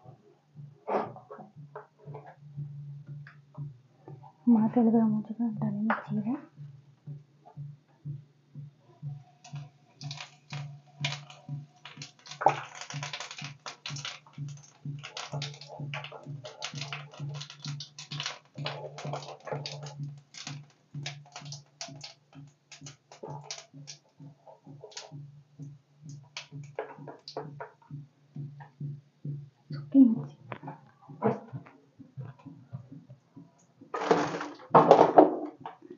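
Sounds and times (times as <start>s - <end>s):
seeds popping in hot oil: 9.0s - 32.8s, 33.6s - 35.9s.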